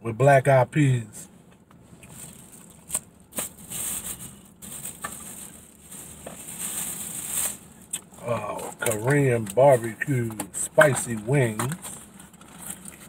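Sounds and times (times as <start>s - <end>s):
rustling handling noise: 1.7s - 13.0s.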